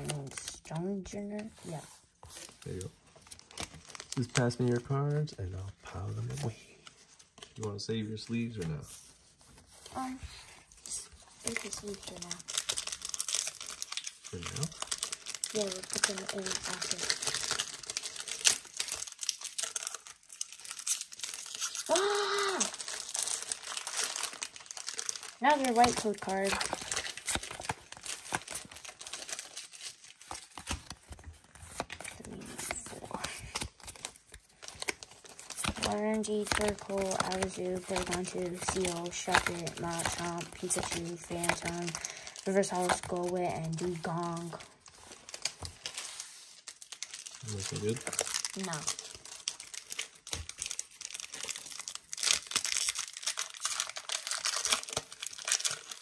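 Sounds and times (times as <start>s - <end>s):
foil wrapper crinkling and tearing: 0.0s - 56.0s
trading cards shuffling: 22.6s - 46.7s.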